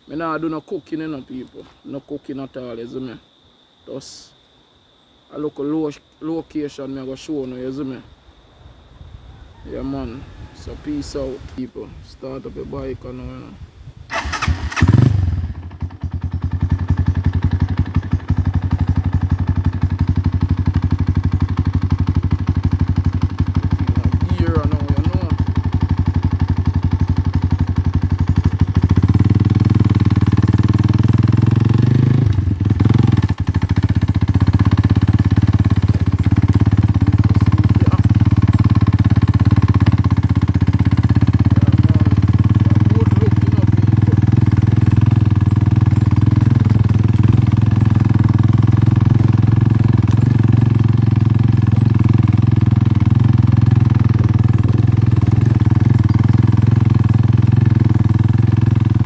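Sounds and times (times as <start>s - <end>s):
motorcycle engine running: 14.1s - 59.0s.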